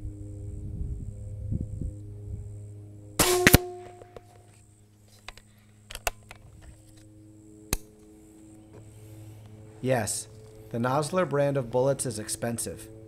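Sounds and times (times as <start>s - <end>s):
air rifle shot: 3.2s - 4.0s.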